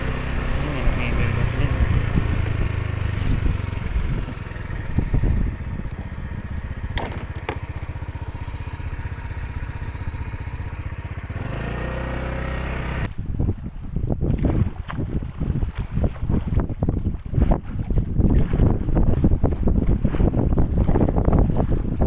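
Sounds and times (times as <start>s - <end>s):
small engine running: 0.0s - 13.1s
brief knocks: 7.0s - 7.6s.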